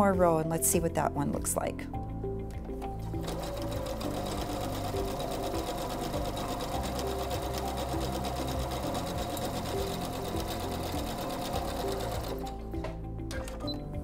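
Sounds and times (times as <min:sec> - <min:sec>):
sewing machine stitching: 0:03.2 - 0:12.6.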